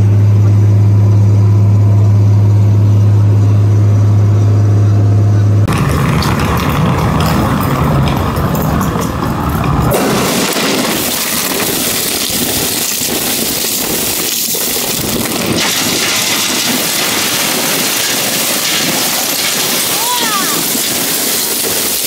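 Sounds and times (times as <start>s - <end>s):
crushed ice pouring into basket: 5.7s - 22.0s.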